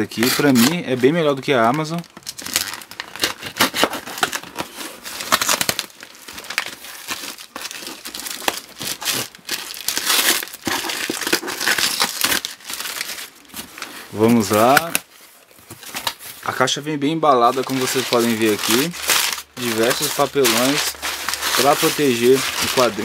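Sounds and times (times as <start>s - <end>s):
plastic wrap and tape crinkling: 0.0s - 23.0s
knife cutting cardboard box: 3.2s - 5.8s.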